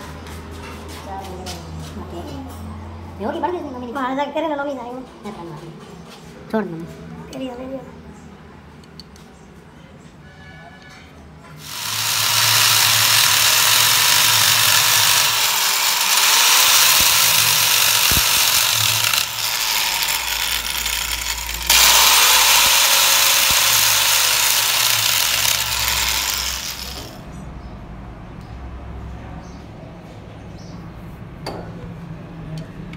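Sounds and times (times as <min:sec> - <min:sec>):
angle grinder grinding metal: 0:11.6 - 0:27.2.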